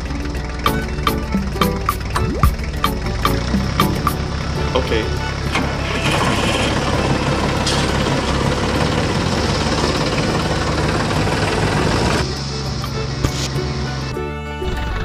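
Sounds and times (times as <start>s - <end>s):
toy tractor running: 4.2s - 14.1s.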